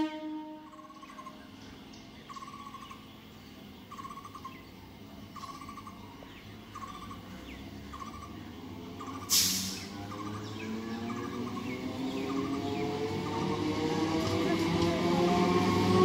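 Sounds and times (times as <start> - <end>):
bird pulsed call: 0.0 - 13.8
train rumble: 0.0 - 16.0
loud hiss: 9.2 - 10.1.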